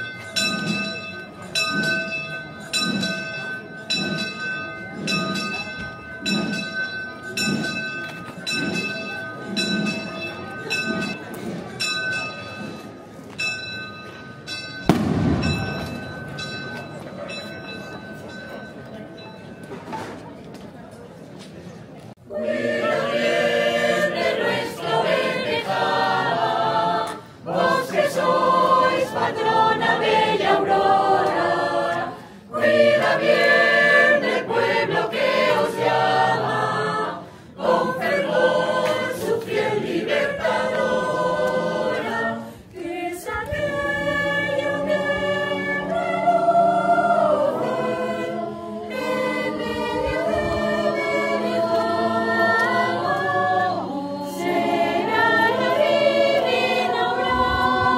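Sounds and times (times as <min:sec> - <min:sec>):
choir singing a hymn unaccompanied: 0:22.2 - 0:57.9.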